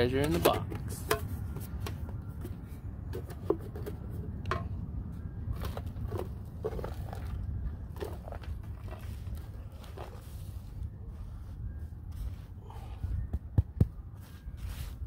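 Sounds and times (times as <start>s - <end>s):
scraping dry soil: 5.5s - 13.0s, 14.1s - 15.0s.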